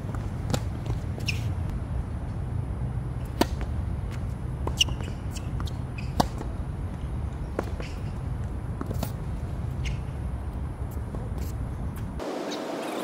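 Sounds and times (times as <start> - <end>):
tennis ball hitting racket: 0.1 - 1.6, 3.3 - 6.6.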